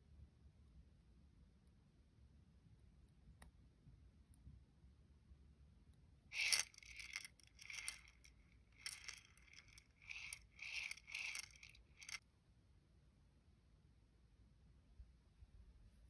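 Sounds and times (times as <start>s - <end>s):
beads rattling in plastic container: 6.4s - 12.2s.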